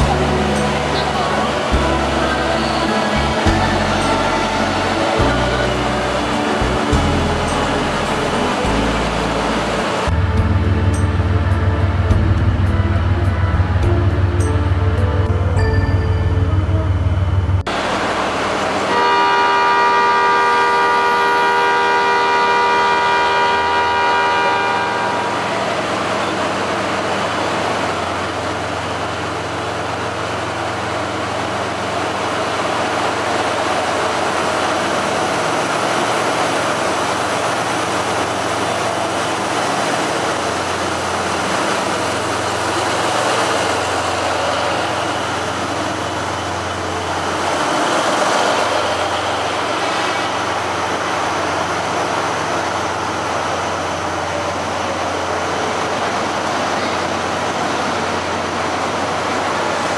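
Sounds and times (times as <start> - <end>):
held chord of steady tones: 0.0 - 10.1
locomotive engine low hum: 0.0 - 59.9
train wheels rumbling: 0.0 - 59.9.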